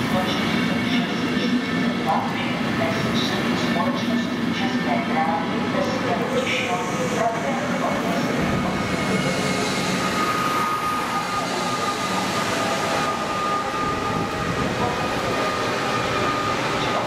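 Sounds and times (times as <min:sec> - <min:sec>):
train wheels rumbling on rails: 0:00.0 - 0:17.0
steady high whine: 0:06.8 - 0:17.0.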